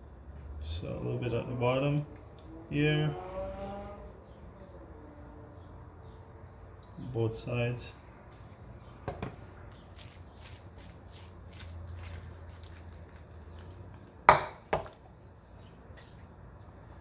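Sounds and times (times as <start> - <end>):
sharp knocks on countertop: 9.0 - 9.4, 14.3 - 15.0.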